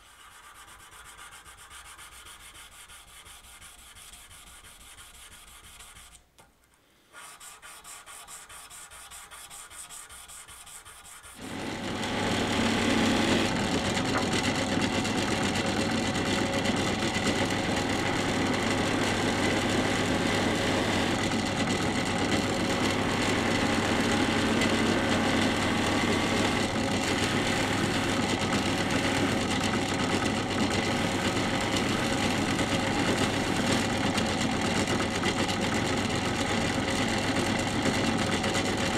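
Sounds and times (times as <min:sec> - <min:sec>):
hand-sanding strokes on metal blade: 0:00.0 - 0:06.2, 0:07.1 - 0:11.4
drill press buffing wheel humming: 0:11.4 - 0:38.9.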